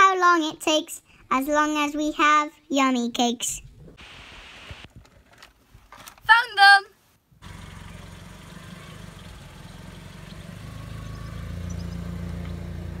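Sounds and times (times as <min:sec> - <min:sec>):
car engine running at low revs: 0:07.4 - 0:13.0.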